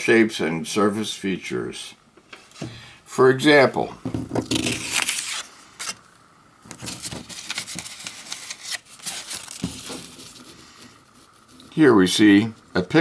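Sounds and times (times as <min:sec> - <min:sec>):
paper cards rustling: 0:04.4 - 0:06.0, 0:06.7 - 0:11.7.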